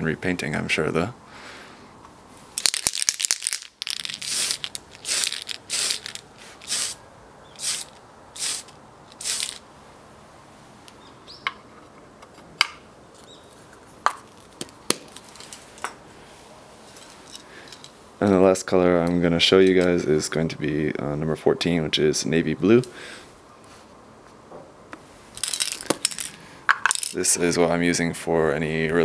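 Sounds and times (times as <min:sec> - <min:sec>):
spray paint can hissing: 0:02.6 - 0:07.0, 0:07.6 - 0:09.6.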